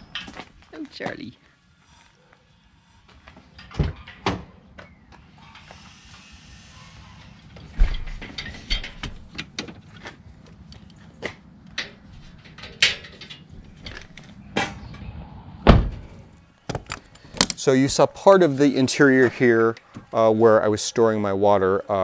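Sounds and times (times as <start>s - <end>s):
heavy thud: 15.6s - 16.2s.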